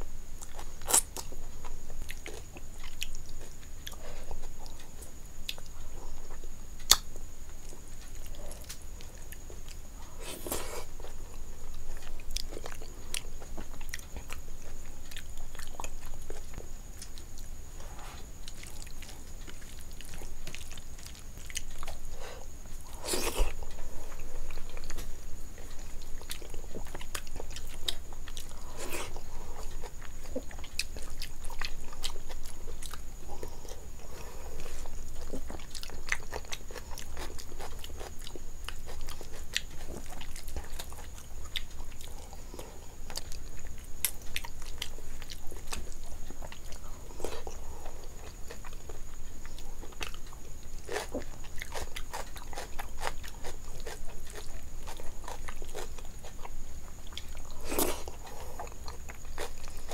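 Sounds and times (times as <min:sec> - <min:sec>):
wet chewing: 0:18.4 - 0:59.9.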